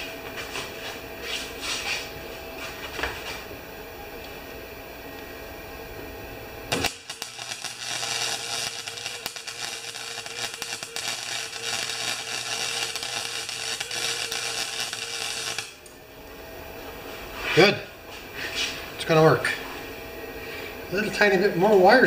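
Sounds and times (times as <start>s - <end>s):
welder arc crackling: 6.7s - 16.0s.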